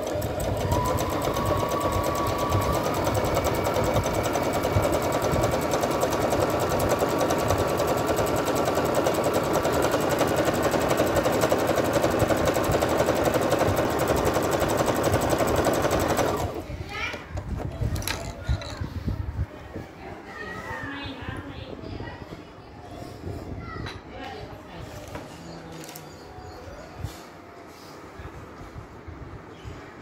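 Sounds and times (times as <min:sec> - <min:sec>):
sewing machine clattering: 0:00.0 - 0:18.8.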